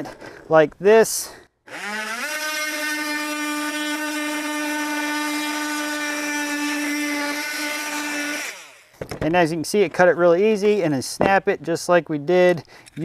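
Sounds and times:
multi-tool cutting cement board: 1.7 - 9.2.

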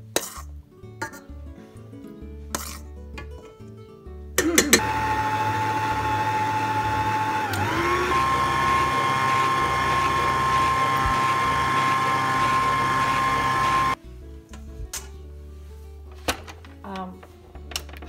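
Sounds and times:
stand mixer motor whining: 4.8 - 14.0.

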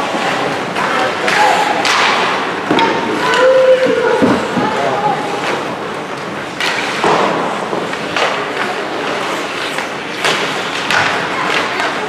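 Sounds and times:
hockey sticks and puck knocking: 0.0 - 12.0
skate blades scraping on ice: 5.2 - 11.5.

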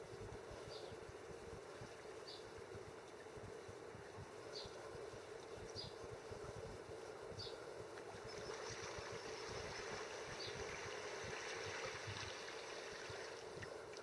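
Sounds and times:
steady background hiss: 0.0 - 14.0
water lapping and gurgling: 8.0 - 14.0
faint high chirp: 8.2 - 11.0.

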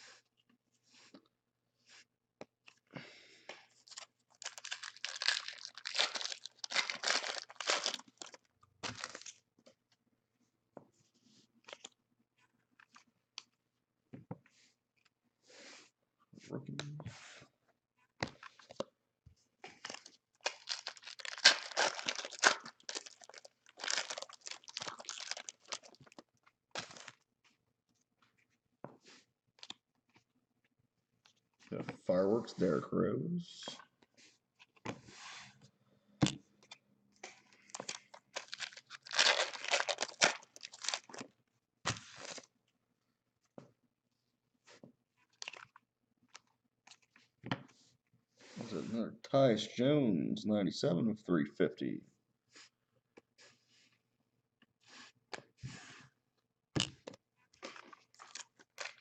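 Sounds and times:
plastic wrappers tearing and crinkling: 3.8 - 9.3, 19.8 - 26.2, 37.7 - 41.3, 41.9 - 42.5, 57.6 - 59.0.

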